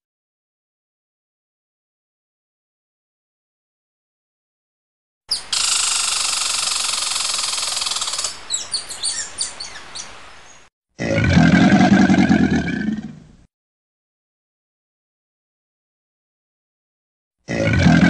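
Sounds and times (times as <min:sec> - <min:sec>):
low growling roar: 0:17.5 - 0:18.0.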